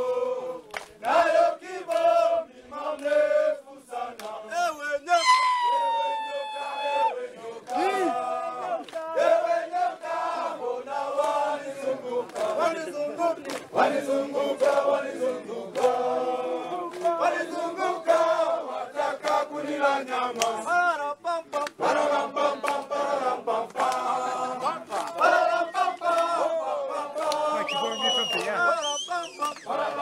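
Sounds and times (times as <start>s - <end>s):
hand claps: 0.0s - 2.2s, 2.8s - 3.2s, 4.1s - 4.4s, 7.6s - 9.2s, 11.2s - 11.5s, 12.2s - 12.8s, 13.4s - 13.8s, 14.6s - 16.0s, 16.8s - 17.2s, 19.2s - 19.5s, 20.3s - 20.6s, 21.4s - 22.0s, 22.6s - 23.0s, 23.6s - 26.4s, 27.2s - 29.8s
men singing together: 0.0s - 5.3s, 6.4s - 30.0s.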